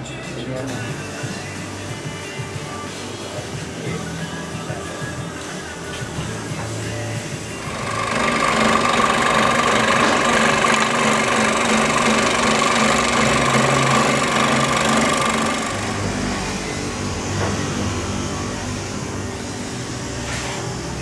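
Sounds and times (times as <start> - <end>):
scroll saw cutting wood: 7.6 - 16.6.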